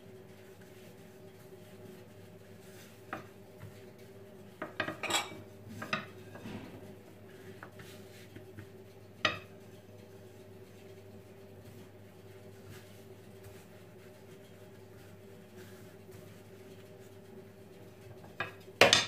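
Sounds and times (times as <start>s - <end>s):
rolling pin knocking on countertop: 18.2s - 19.0s.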